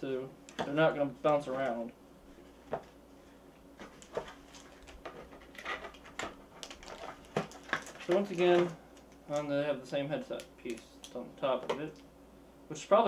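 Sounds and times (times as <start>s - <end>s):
plastic packaging rustling: 3.8s - 9.5s.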